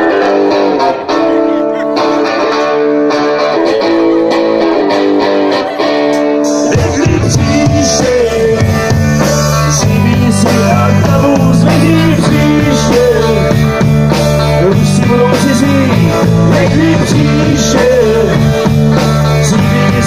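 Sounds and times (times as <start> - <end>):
person singing: 0.0 - 13.9, 14.5 - 20.0
bass guitar: 0.0 - 20.0
electric guitars: 0.0 - 20.0
drum kit: 2.0 - 20.0.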